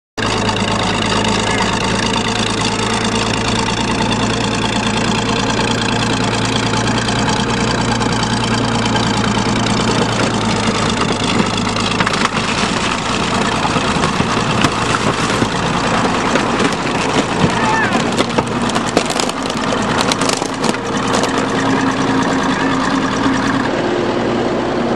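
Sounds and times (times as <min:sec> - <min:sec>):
engine idling: 0:00.2 - 0:24.9
irregular crackling noise: 0:09.8 - 0:21.5.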